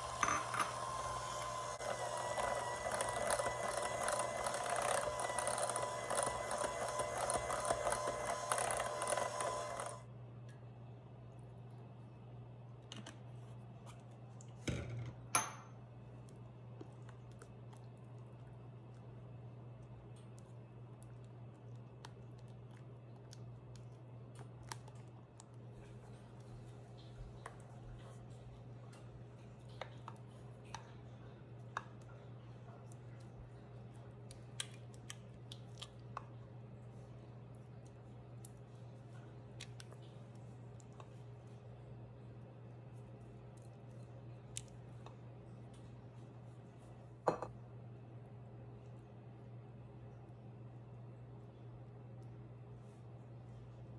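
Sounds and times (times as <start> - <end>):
utensil knocking and scraping bowl: 0.0 - 0.9
spatula stirring batter: 0.0 - 10.0.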